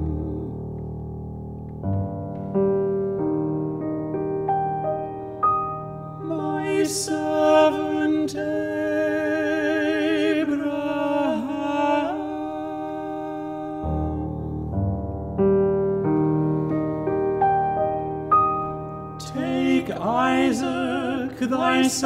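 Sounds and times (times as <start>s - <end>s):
grand piano accompaniment: 0.0s - 22.0s
male voices singing with vibrato: 6.2s - 14.8s, 19.2s - 22.0s.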